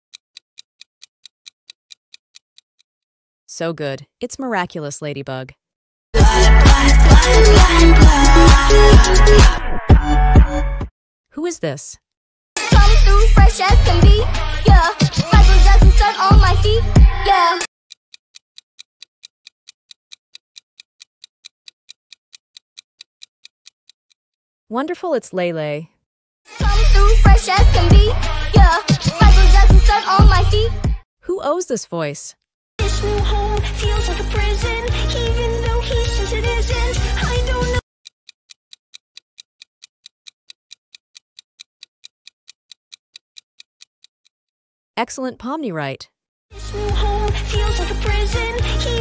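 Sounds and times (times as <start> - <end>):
rapid clock ticks: 0.1 - 2.9, 12.6 - 24.3, 26.9 - 30.6, 36.7 - 44.6.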